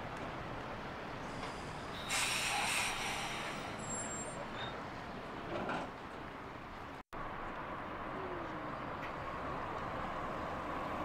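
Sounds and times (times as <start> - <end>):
tram rumbling: 0.0 - 11.0
compressed air hiss: 1.3 - 3.9.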